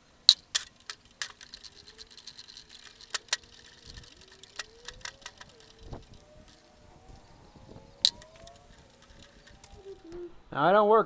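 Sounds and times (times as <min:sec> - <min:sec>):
metal clacks: 0:00.3 - 0:06.6
ratchet wrench clicking: 0:00.3 - 0:06.6.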